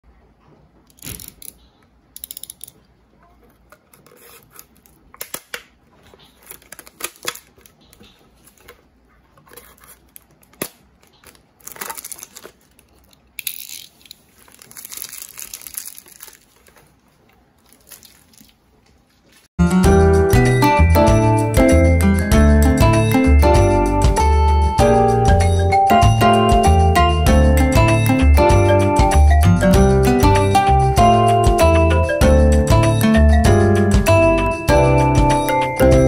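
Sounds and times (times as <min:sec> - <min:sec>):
plastic crinkling: 0:03.3 - 0:19.5.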